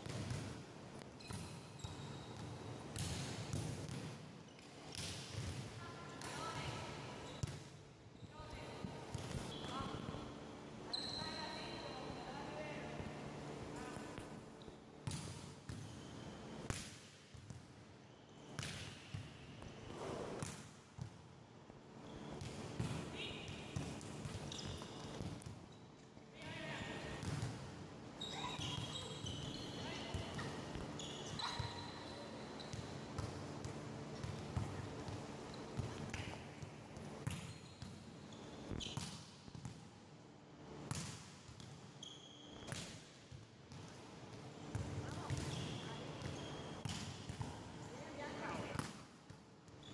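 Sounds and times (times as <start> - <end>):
sneaker squeaks: 1.2 - 2.5, 7.2 - 7.5, 8.2 - 10.0, 10.9 - 12.2, 15.7 - 16.5, 23.7 - 26.0, 28.2 - 33.2, 37.3 - 39.2, 42.0 - 42.9, 45.1 - 47.1.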